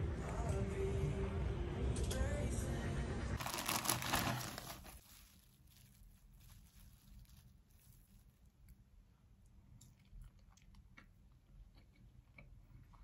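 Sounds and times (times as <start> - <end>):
cling film crinkling: 3.4 - 8.6.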